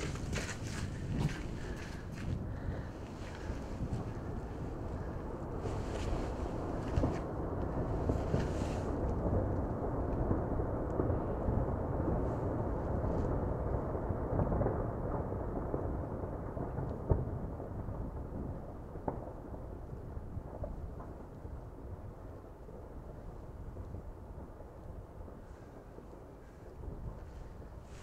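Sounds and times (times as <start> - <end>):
volcano eruption rumble: 0.0 - 28.0.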